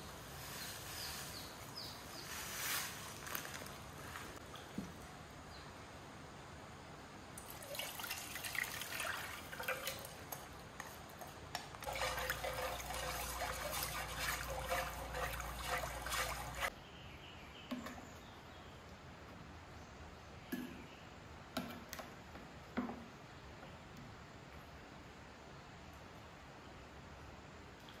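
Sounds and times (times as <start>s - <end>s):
water running: 7.4s - 16.7s
water trickling: 7.4s - 16.7s.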